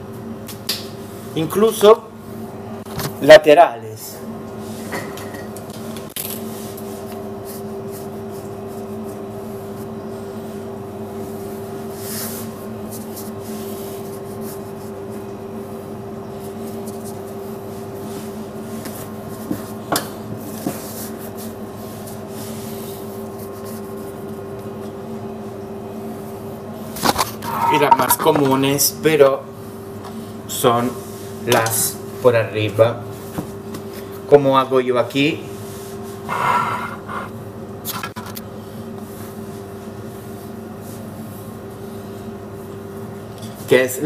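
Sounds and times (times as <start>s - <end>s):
dough rubbing and scraping: 6.4s - 24.9s.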